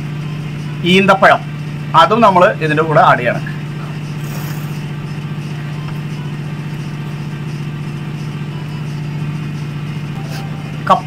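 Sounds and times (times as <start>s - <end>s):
machine hum: 3.6s - 11.0s.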